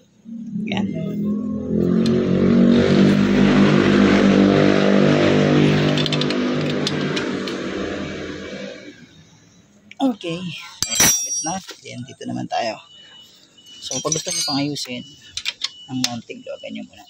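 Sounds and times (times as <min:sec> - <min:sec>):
vehicle engine passing: 0:00.2 - 0:09.3.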